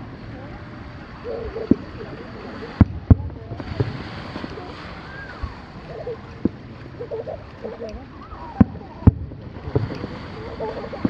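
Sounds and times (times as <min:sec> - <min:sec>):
fireworks bursting with bangs: 0:02.7 - 0:05.0, 0:08.6 - 0:11.0.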